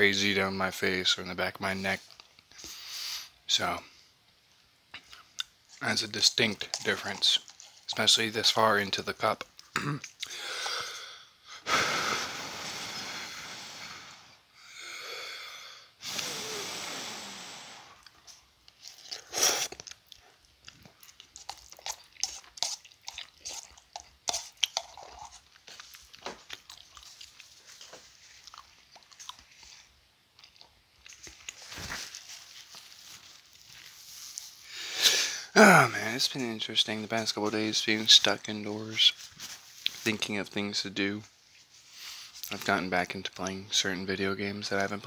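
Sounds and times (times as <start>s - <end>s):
person chewing: 5.0s - 8.3s, 18.0s - 34.6s
person slurping noodles: 11.7s - 14.3s, 16.0s - 18.2s, 18.9s - 19.8s
nose blow into tissue: 11.7s - 14.4s, 16.0s - 18.0s.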